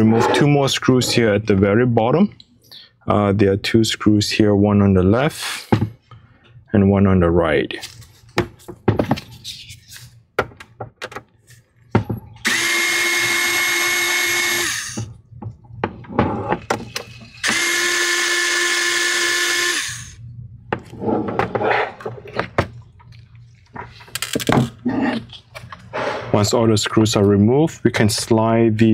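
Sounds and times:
electric screwdriver running: 12.4 - 15.1, 17.4 - 20.2.

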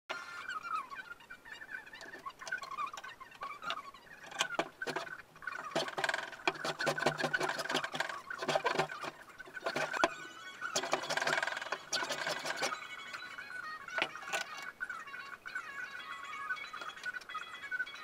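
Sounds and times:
hand plane rasping on wood: 5.7 - 10.1, 10.8 - 12.8.

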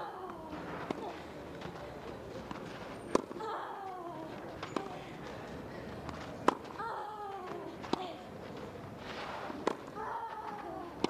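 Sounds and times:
tennis racket hitting ball: 6.4 - 6.8, 9.1 - 9.9.

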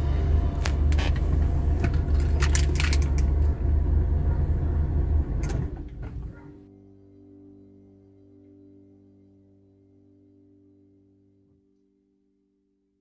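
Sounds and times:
car engine low rumble: 0.0 - 6.7.

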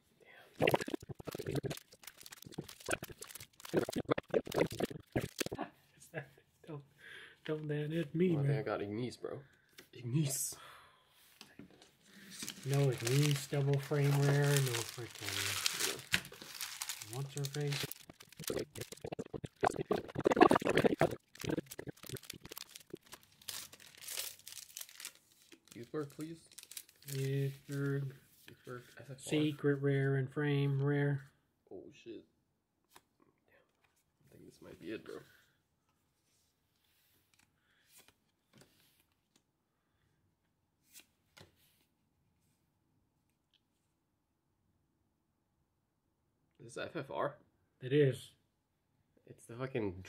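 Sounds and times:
foil wrappers crinkling: 0.6 - 5.5, 12.3 - 27.8
trading cards being flipped: 0.8 - 5.5, 12.3 - 27.3.

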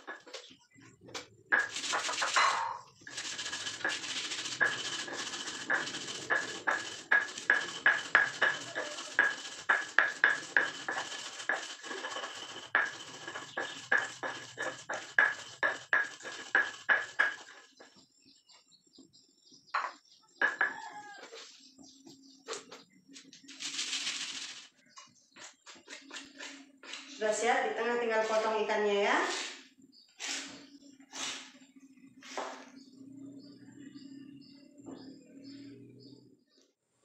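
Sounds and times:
stone pestle grinding in mortar: 1.6 - 17.9.

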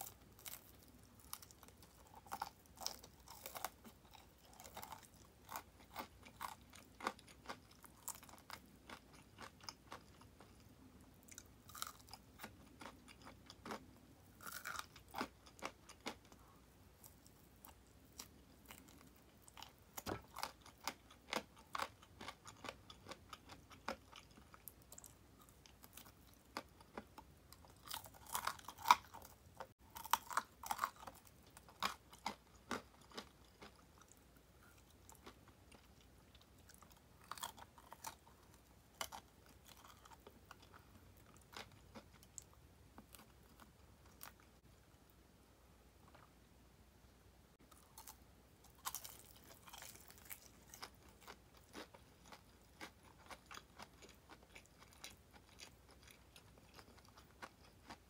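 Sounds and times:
person chewing crispy chicken: 0.0 - 44.5, 47.7 - 58.0.

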